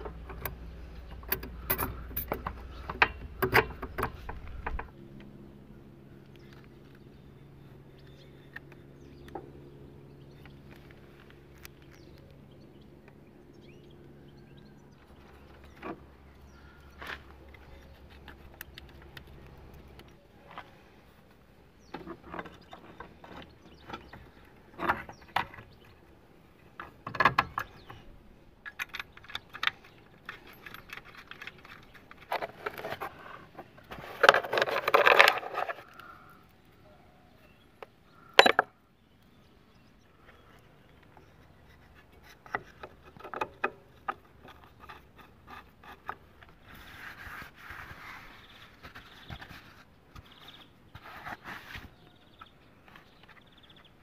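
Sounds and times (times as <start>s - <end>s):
steel bolts rattling: 0.0s - 4.9s
small metal parts clinking: 28.6s - 32.8s.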